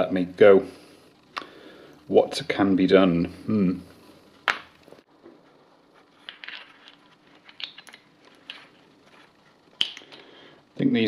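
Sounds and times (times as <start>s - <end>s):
small metal parts clinking: 6.3s - 8.7s.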